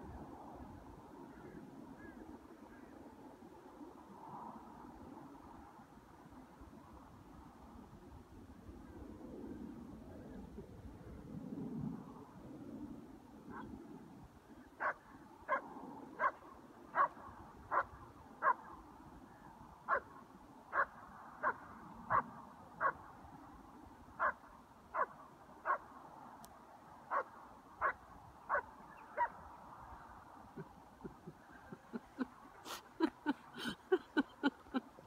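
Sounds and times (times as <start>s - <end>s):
dog barking: 14.8s - 15.6s, 16.2s - 18.6s, 19.9s - 20.1s, 20.7s - 23.0s, 25.0s - 25.8s, 27.1s - 29.4s.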